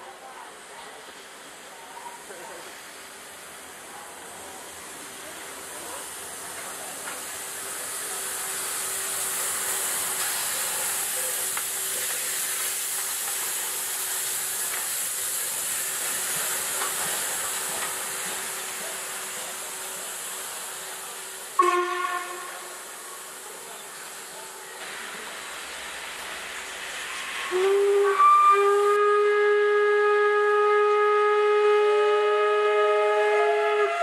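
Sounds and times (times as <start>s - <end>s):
steam locomotive rolling past: 0.0s - 34.0s
hiss of escaping steam: 1.0s - 30.2s.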